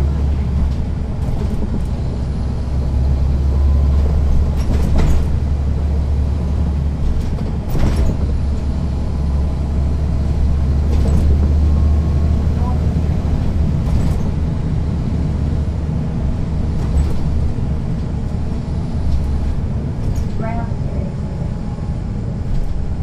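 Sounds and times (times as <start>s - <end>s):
bus diesel engine droning: 0.0s - 23.0s.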